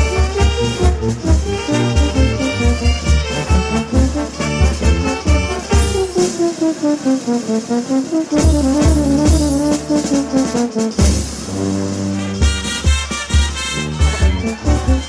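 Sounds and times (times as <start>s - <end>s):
brass band playing dance music: 0.0s - 15.0s.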